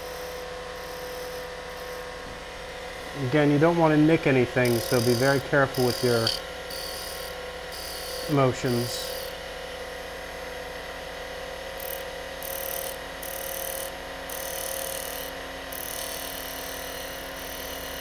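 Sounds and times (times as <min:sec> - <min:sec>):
lathe motor whine: 0:00.0 - 0:18.0
chisel cutting wood hiss: 0:04.6 - 0:07.2.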